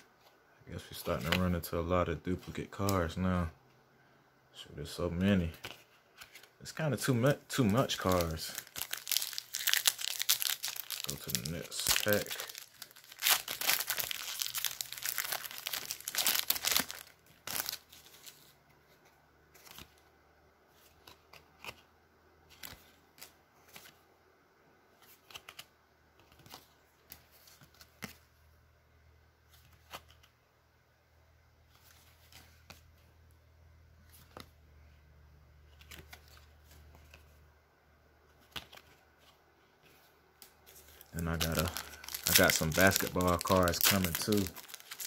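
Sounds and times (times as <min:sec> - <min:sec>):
cards clicking and rustling: 0:00.8 - 0:01.6, 0:05.4 - 0:20.0, 0:20.8 - 0:21.9, 0:22.5 - 0:24.0, 0:25.0 - 0:28.2, 0:29.6 - 0:30.3, 0:34.0 - 0:34.6, 0:35.7 - 0:37.3, 0:38.3 - 0:45.0
foil wrapper crinkling and tearing: 0:07.5 - 0:18.4, 0:40.8 - 0:45.0.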